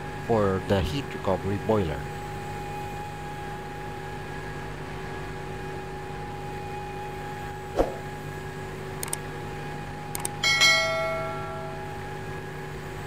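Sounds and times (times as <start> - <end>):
machinery hum with held tones: 0.0 - 13.0
sharp thump: 7.8 - 8.0.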